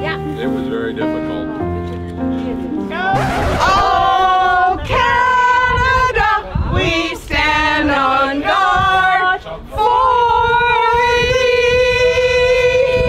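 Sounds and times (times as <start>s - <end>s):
women singing together: 3.6s - 13.0s.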